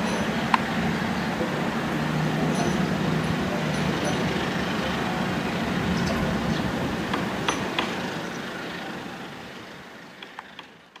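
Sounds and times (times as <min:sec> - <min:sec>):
train rumbling on tracks: 0:00.0 - 0:10.8
sharp clicks: 0:10.2 - 0:11.0.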